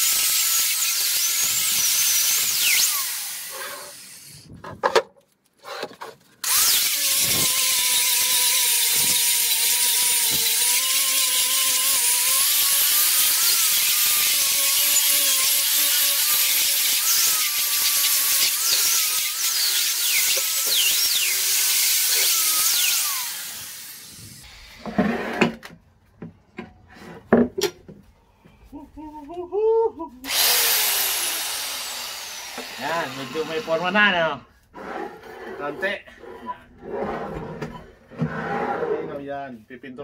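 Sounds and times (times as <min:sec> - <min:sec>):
angle grinder grinding metal: 0:00.0 - 0:04.5, 0:06.4 - 0:25.5, 0:30.3 - 0:34.2.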